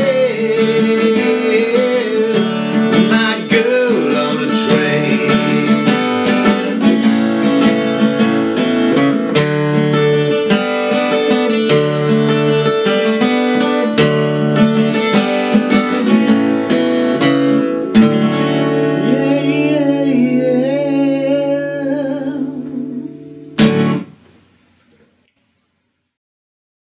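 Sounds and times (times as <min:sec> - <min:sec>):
man singing wordless note: 0:00.0 - 0:07.2, 0:19.0 - 0:23.3
acoustic guitar strumming: 0:00.0 - 0:24.5.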